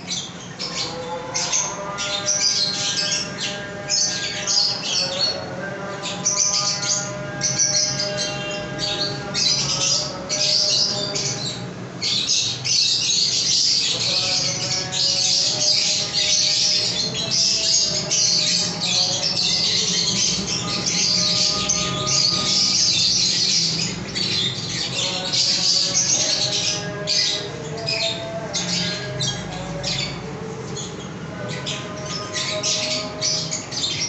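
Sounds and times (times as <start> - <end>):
lovebirds chattering and squawking: 0.0 - 34.0.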